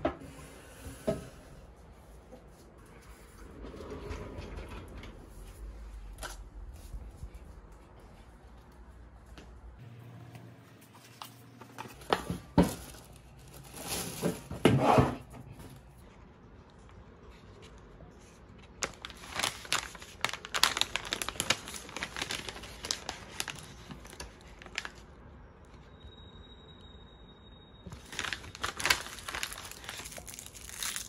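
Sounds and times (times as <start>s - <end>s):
snack pouch crinkling: 18.8s - 24.9s, 28.0s - 31.0s.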